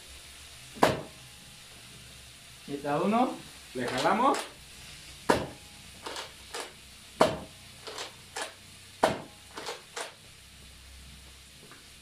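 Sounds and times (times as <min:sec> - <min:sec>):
toy blaster shots snapping: 0:06.0 - 0:06.7, 0:07.8 - 0:08.6, 0:09.6 - 0:10.2.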